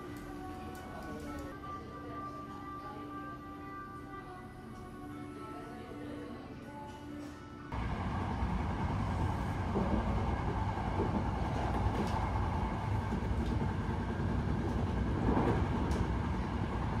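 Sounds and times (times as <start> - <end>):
train rumbling on track: 7.8 - 17.0.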